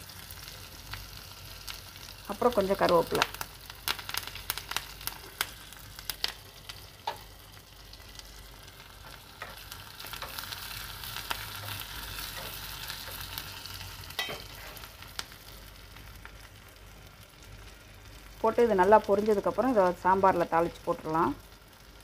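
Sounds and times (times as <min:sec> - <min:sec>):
food sizzling in hot oil: 0:00.0 - 0:22.0.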